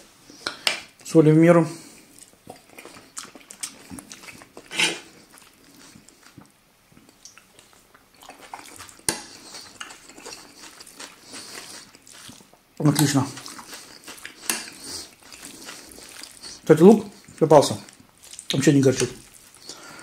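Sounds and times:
spoon scraping enamel pot: 4.7 - 5.0.

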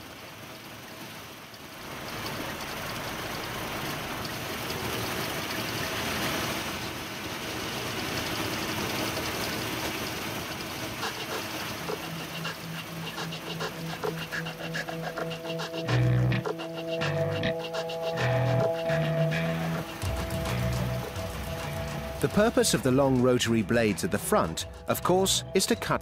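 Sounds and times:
combine harvester running: 0.0 - 26.0
music with a regular beat: 12.4 - 26.0.

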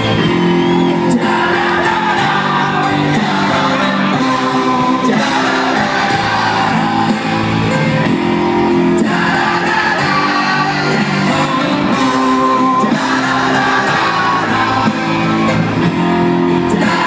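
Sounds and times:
live punk rock band: 0.0 - 17.0
several voices singing: 0.6 - 7.9, 8.6 - 17.0.

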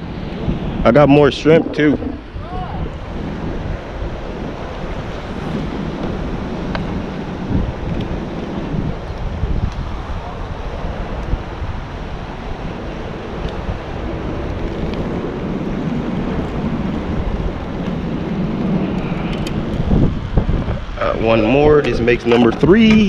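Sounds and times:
sea wash: 0.0 - 7.4
wind buffeting microphone: 0.0 - 23.0.

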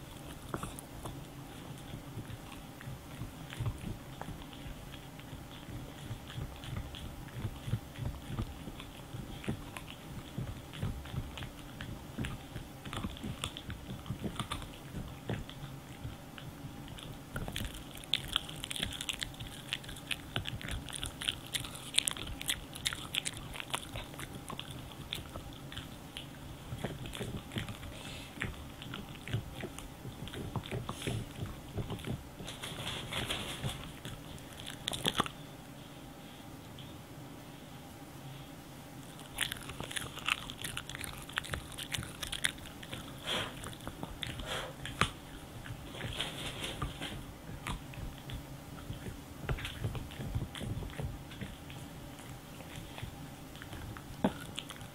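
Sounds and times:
dog gnawing and crunching chew: 0.0 - 36.9, 38.9 - 54.9.

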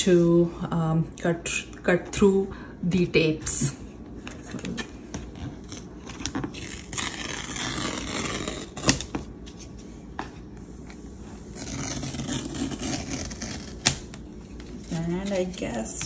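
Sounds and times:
paper tear strip ripping: 5.5 - 9.1, 11.6 - 14.1.

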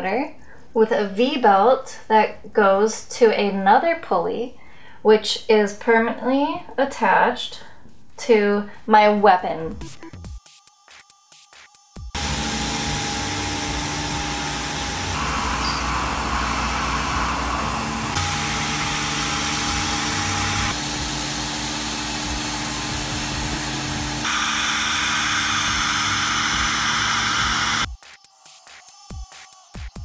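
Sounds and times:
milling machine cutting metal: 12.2 - 27.9.

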